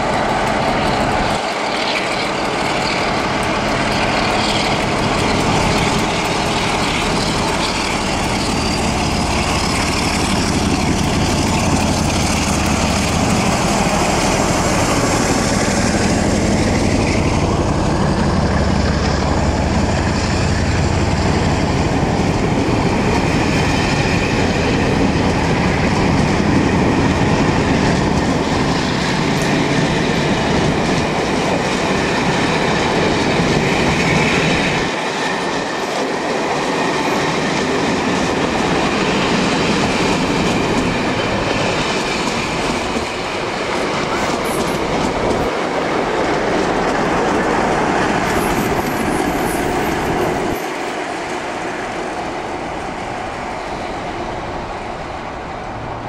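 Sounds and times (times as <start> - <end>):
clickety-clack over rail joints: 0.0 - 56.0
train wheels rumbling on rails: 0.0 - 56.0.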